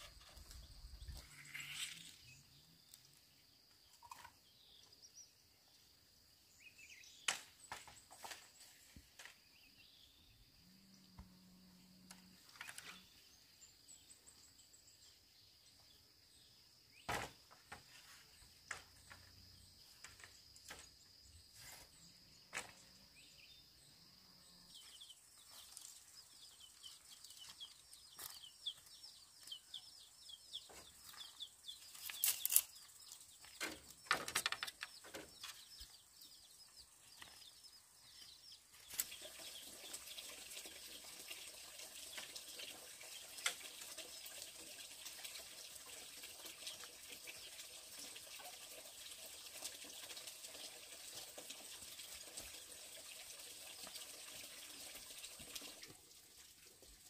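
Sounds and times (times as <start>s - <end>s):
bamboo poles knocking: 33.6s - 35.3s.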